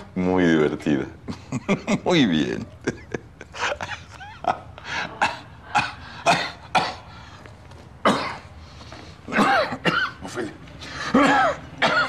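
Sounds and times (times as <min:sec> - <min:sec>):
man coughing: 0:03.6 - 0:07.1, 0:08.0 - 0:08.5, 0:09.3 - 0:10.4, 0:11.0 - 0:12.0.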